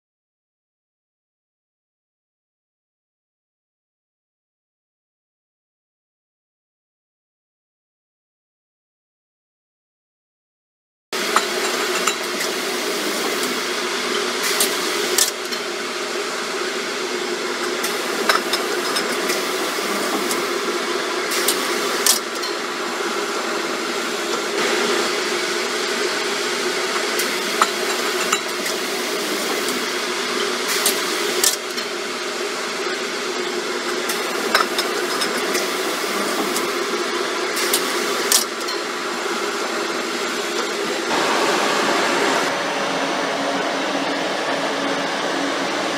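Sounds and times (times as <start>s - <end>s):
machine humming: 11.2s - 45.9s.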